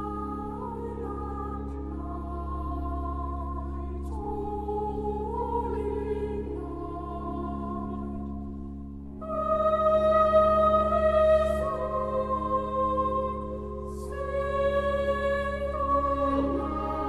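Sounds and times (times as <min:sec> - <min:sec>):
choir holding chords: 0:00.0 - 0:17.0.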